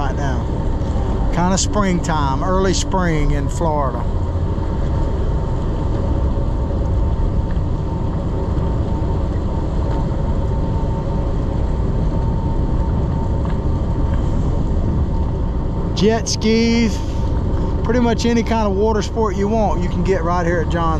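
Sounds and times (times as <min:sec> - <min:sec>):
thin steady tone: 0:00.0 - 0:07.0, 0:14.1 - 0:20.9
boat engine rumbling: 0:00.0 - 0:20.9
water and air noise: 0:00.0 - 0:20.9.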